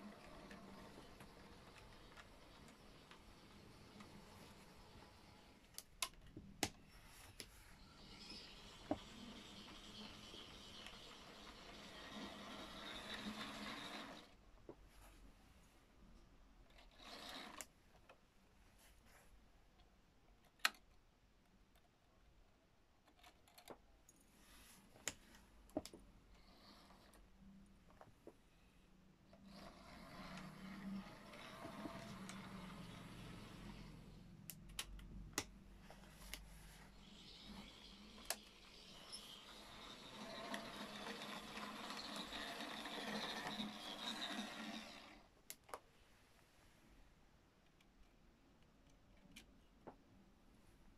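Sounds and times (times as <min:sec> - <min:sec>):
model train wheels rattling: 0:00.0 - 0:05.6, 0:08.0 - 0:14.4, 0:16.7 - 0:17.7, 0:29.4 - 0:34.0, 0:37.0 - 0:45.3
small sharp clicks: 0:34.4 - 0:35.6.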